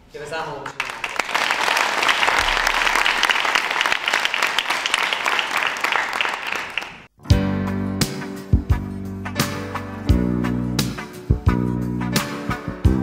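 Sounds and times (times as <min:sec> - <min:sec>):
audience applauding: 0:00.6 - 0:07.1.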